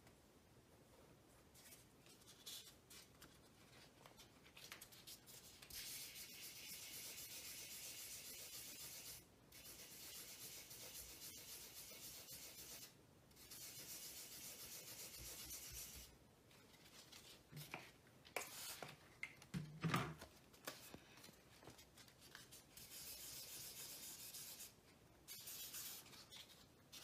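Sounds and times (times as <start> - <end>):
sandpaper rubbing hiss: 5.8 - 16.0, 22.7 - 27.0.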